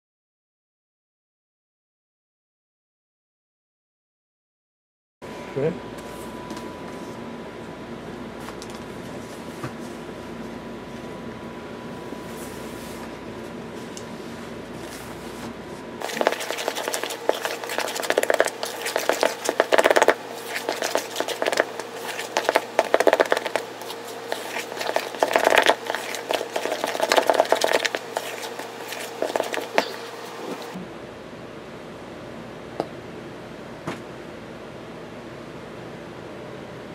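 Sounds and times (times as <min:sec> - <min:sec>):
steady low hum: 0:05.2 - 0:36.9
spoon scraping icing in tub: 0:16.0 - 0:30.8.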